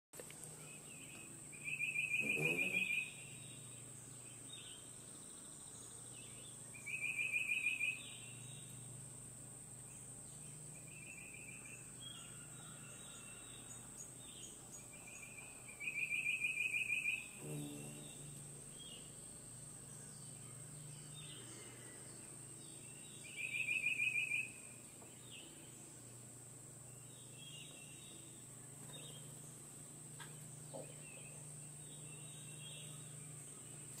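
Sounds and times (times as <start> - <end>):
steady high-pitched buzz: 0.2 - 34.0
soft bird chirps: 0.6 - 8.8
bird fast trill: 1.6 - 3.7.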